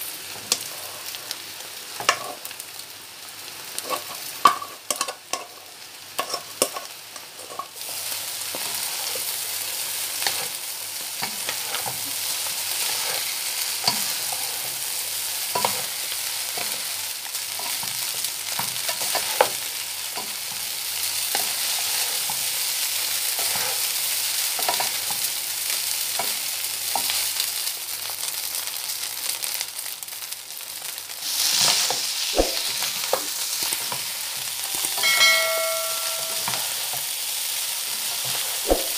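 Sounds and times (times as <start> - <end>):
rice sizzling in a pan: 0.0 - 38.9
wooden spatula scraping and tapping: 6.2 - 7.7, 10.2 - 10.6, 15.6 - 15.9, 18.6 - 19.6, 23.4 - 23.9, 38.2 - 38.9.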